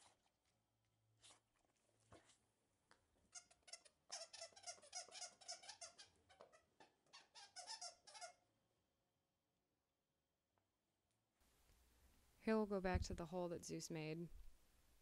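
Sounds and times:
dog toy squeaking: 3.3 - 8.4.

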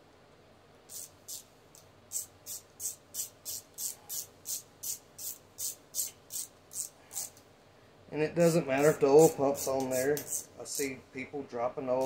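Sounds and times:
hand ratchet clicking: 8.8 - 10.5.

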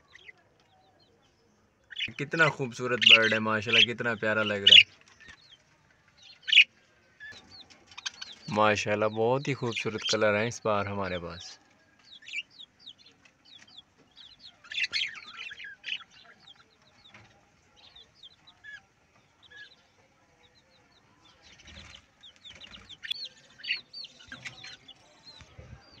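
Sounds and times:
budgerigars chirping and chattering: 1.8 - 26.0.

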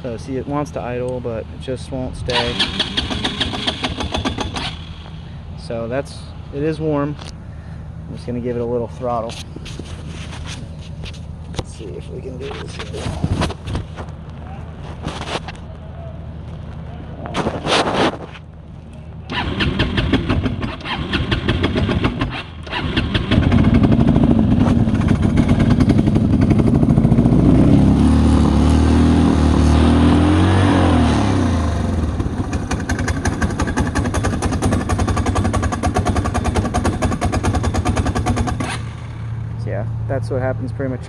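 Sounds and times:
atv engine revving and idling: 0.0 - 6.3, 19.2 - 41.0.

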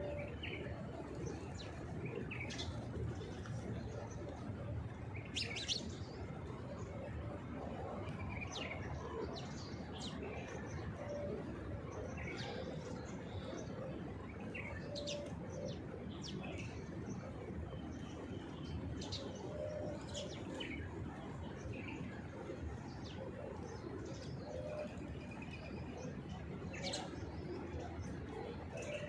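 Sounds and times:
low background noise: 0.0 - 29.0
pigeons cooing: 19.1 - 20.6.

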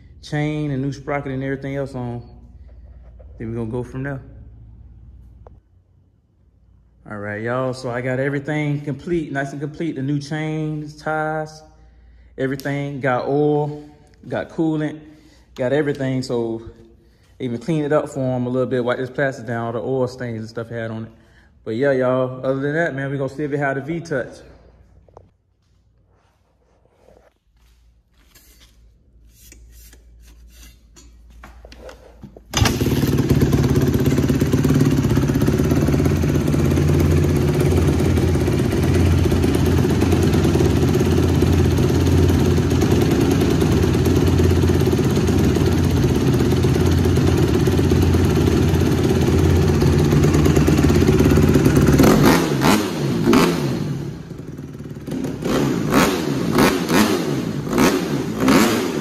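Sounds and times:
motorcycle engine idling and revving: 32.5 - 59.0.

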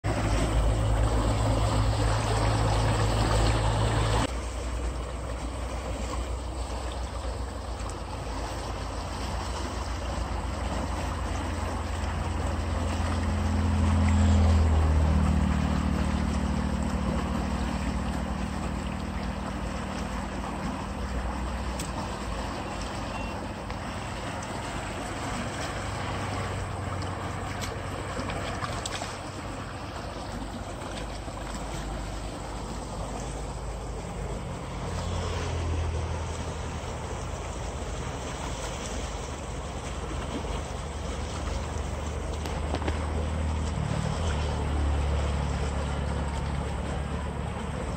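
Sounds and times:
low hum: 0.0 - 47.9
water gushing from a pipe: 0.0 - 47.9.

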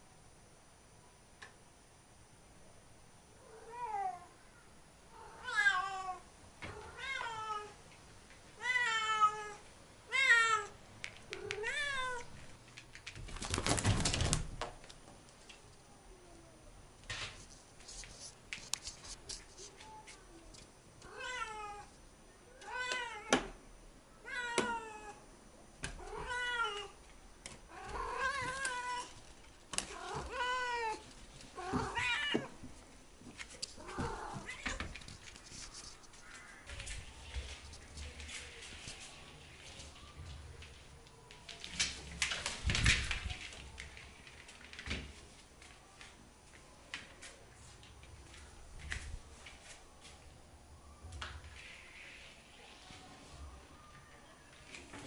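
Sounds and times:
rustling: 11.3 - 15.7, 27.7 - 46.2.

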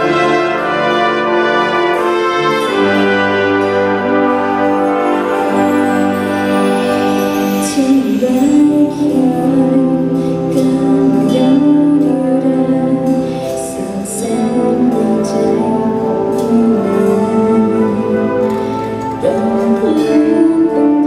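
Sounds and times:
wind band accompaniment: 0.0 - 21.0
woman singing a slow song: 7.4 - 21.0.

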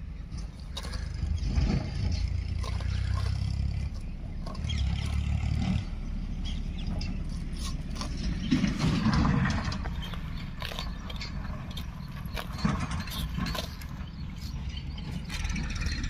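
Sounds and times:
dry stalks rustling: 0.0 - 16.0.

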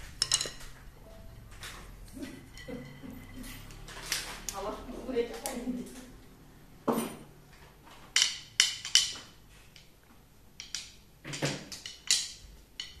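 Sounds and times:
stick clacking on tile floor: 0.0 - 4.7, 7.9 - 13.0.

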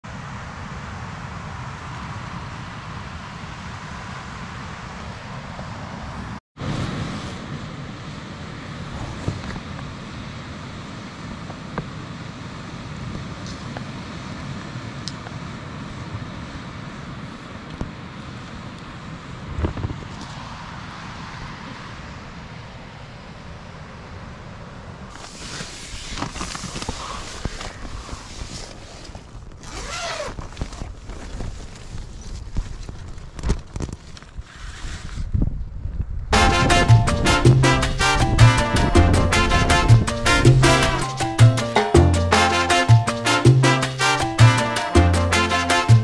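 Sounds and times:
wind rumble on microphone: 0.0 - 41.0
wind buffeting microphone: 18.9 - 22.4, 25.0 - 41.0.

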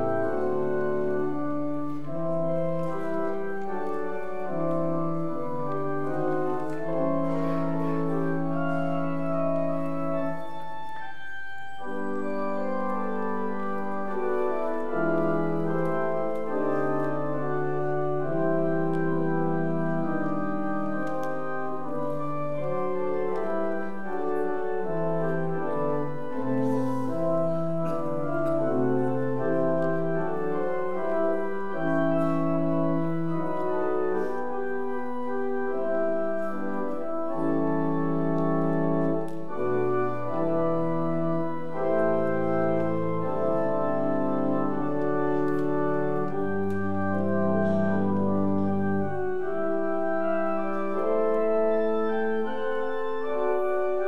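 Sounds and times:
church organ chords: 0.0 - 54.0
deep organ bass notes: 11.4 - 54.0.

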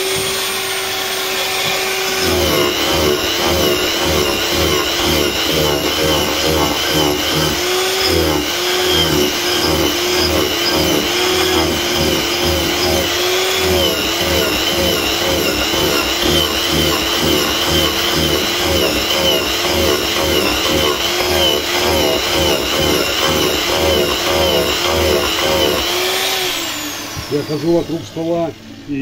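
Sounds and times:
angle grinder carving wood: 0.0 - 28.3.

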